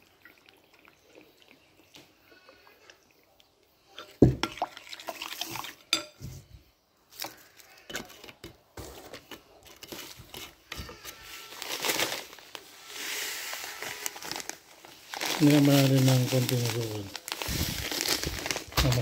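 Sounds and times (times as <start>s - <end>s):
plastic packet crinkling: 8.9s - 19.0s.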